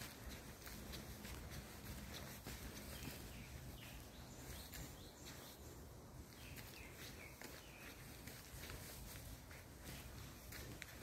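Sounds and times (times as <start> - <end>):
footsteps on forest path: 0.0 - 11.0
bird chirps: 0.3 - 8.5.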